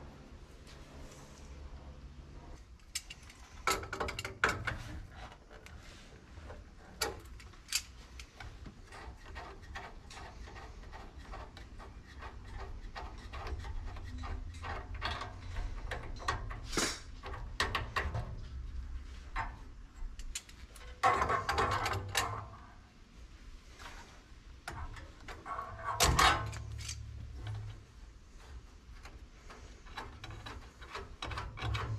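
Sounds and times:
small metallic clicks and taps: 0:19.3 - 0:22.5.

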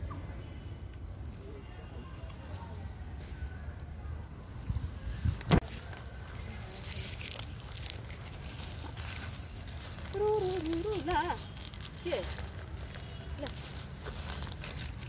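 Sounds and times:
rustling in dry leaves: 0:04.5 - 0:15.0.

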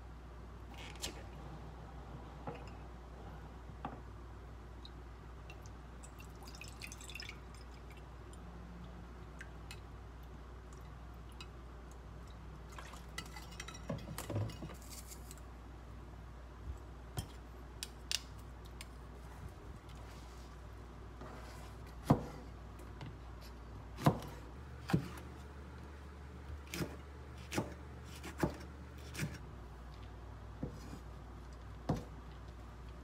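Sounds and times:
kitchenware clatter: 0:13.1 - 0:15.1.

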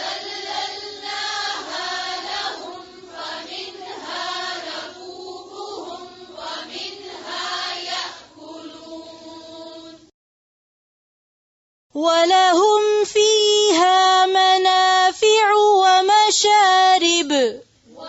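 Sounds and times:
voices chanting melodically: 0:00.0 - 0:10.1, 0:17.8 - 0:18.0.

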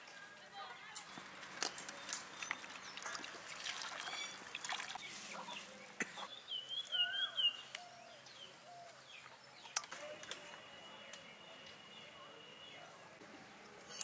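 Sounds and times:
water pouring into metal bowl: 0:02.8 - 0:05.1.

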